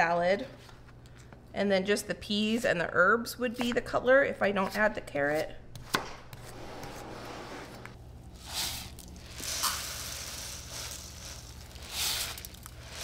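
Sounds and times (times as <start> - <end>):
rustling and hissing: 7.0 - 13.0.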